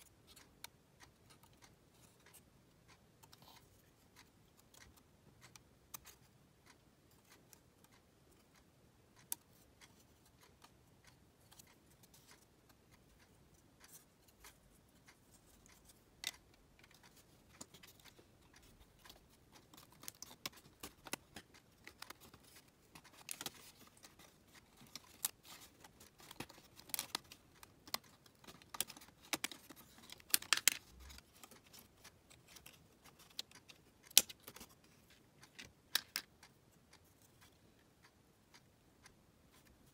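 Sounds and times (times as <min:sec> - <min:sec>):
wooden puzzle pieces clicking: 0:13.8 - 0:36.5.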